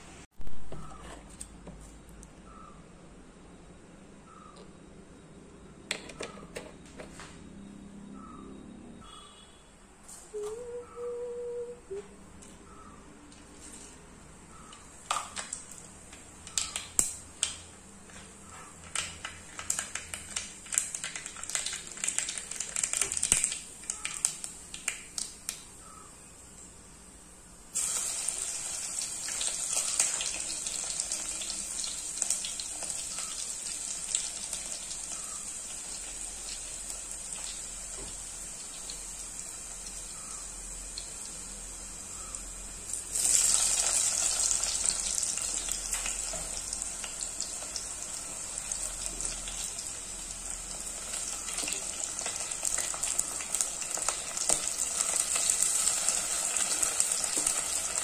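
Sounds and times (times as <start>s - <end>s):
mustard seeds popping in oil: 16.4s - 17.7s, 18.8s - 25.7s
oil sizzling: 19.0s - 25.3s, 27.7s - 58.0s.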